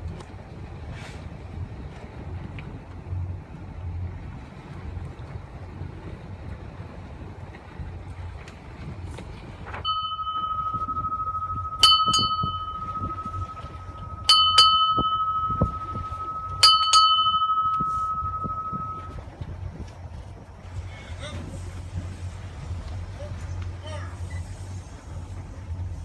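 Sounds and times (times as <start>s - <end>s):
small hand bell ringing: 9.9s - 19.2s.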